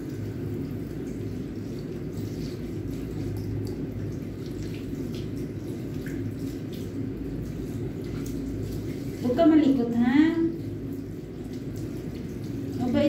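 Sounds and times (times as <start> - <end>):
tap water running into sink: 0.0 - 13.0
water splashing and dripping: 0.0 - 13.0.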